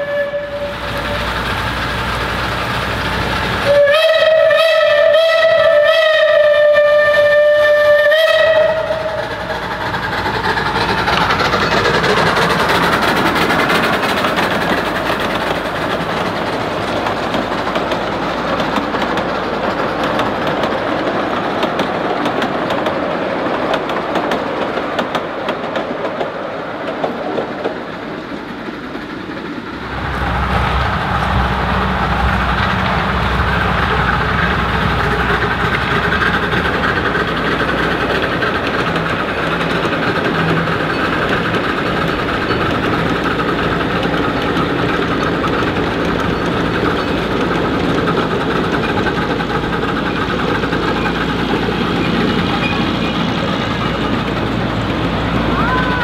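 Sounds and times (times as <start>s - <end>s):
locomotive whistle: 0.0s - 1.4s, 3.6s - 9.4s, 55.4s - 56.0s
low diesel engine hum: 0.0s - 56.0s
train wheels clattering on rails: 0.0s - 56.0s.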